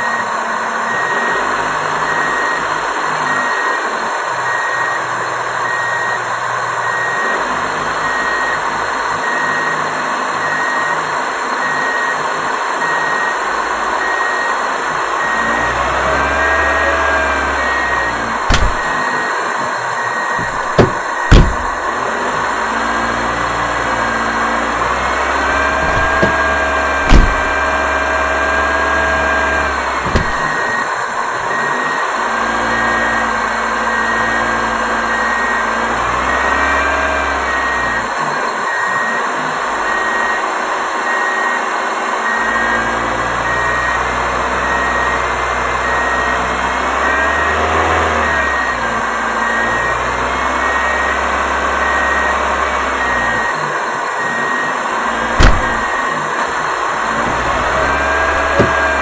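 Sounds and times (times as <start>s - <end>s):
sharp knock: 20.4s - 21.8s, 27.0s - 27.5s, 55.4s - 55.9s.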